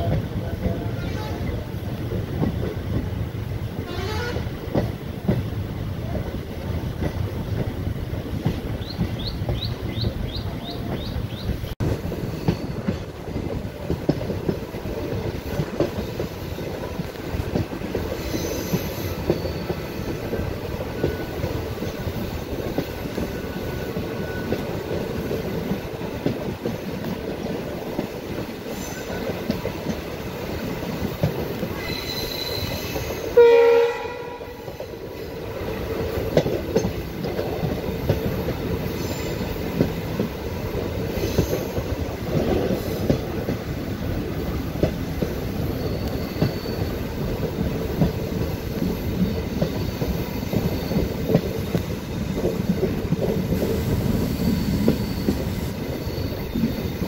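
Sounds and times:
train running rumble: 0:00.0 - 0:57.0
train horn blast: 0:03.8 - 0:04.6, 0:32.0 - 0:34.7
faint high wheel squeal: 0:18.1 - 0:22.1, 0:23.2 - 0:25.2, 0:31.8 - 0:33.4, 0:45.4 - 0:47.3, 0:48.3 - 0:51.7, 0:54.1 - 0:57.0.

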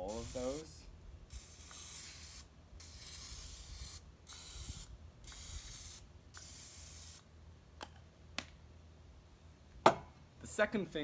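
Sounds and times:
aerosol spray hissing: 0:00.0 - 0:00.7, 0:01.3 - 0:07.2.

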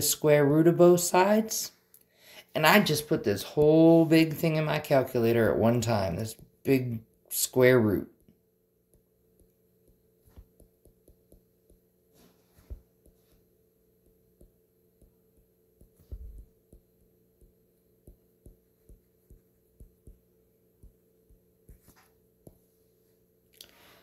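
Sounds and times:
faint steady hum: 0:00.0 - 0:24.0
taps on touchscreen: 0:08.9 - 0:11.9, 0:14.0 - 0:21.9.

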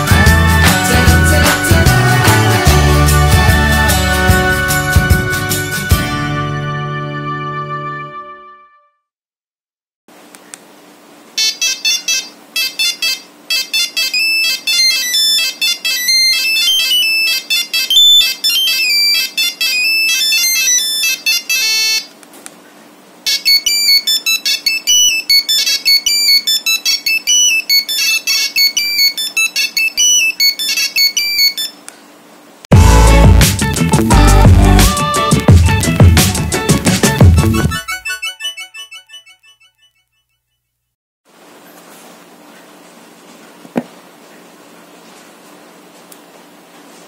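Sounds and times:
mobile phone ringtone beeps: 0:11.4 - 0:22.1, 0:23.3 - 0:31.8, 0:37.7 - 0:40.0.

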